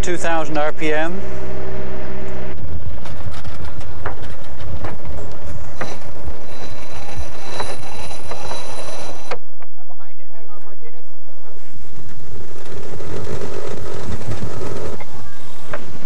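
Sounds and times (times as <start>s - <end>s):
thin high whine: 0.0s - 16.0s
sailcloth flapping in wind: 2.6s - 9.8s, 11.2s - 16.0s
rigging clicks and knocks: 3.0s - 5.9s.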